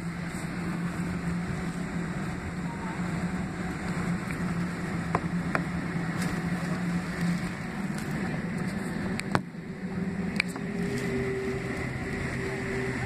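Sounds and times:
jet engines humming in cabin: 0.0s - 13.0s.

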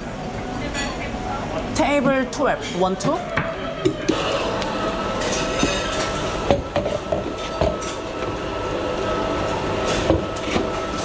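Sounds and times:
espresso machine hum: 3.3s - 11.0s.

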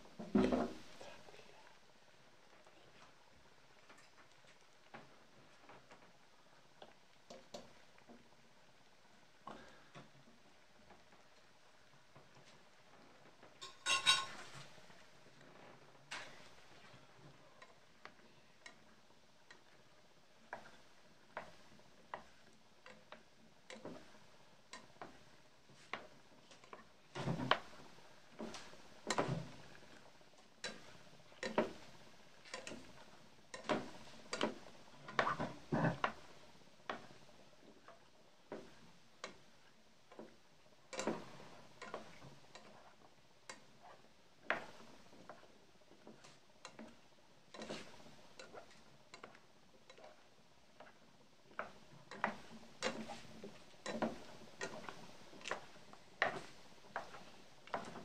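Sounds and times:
spatula scraping frying pan: 47.5s - 49.2s.

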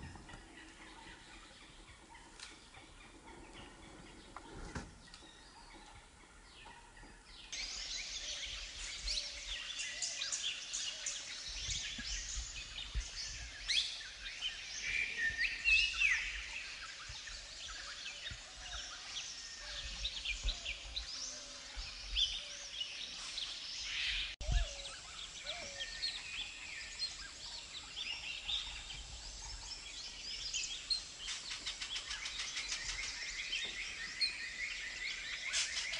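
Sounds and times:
small birds chirping and trilling: 0.0s - 35.9s.

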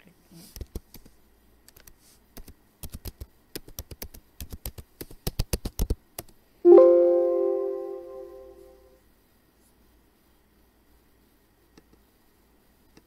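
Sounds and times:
computer alert chime: 6.7s - 8.7s.

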